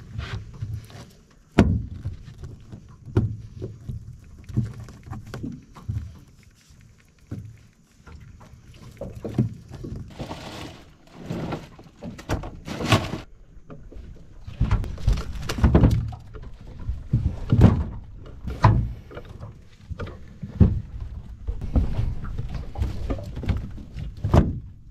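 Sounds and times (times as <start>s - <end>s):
knocks and thuds of gear in boat: 0.0s - 6.2s, 9.0s - 24.9s.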